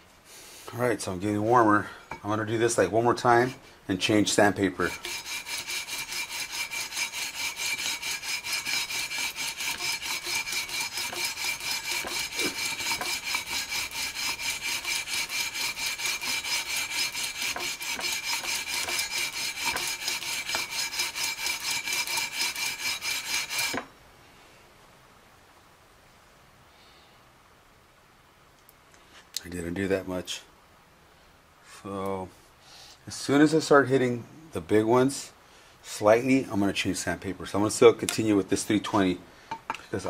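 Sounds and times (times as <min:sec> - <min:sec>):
sandpaper rubbing on metal frets: 0:04.5 - 0:23.8.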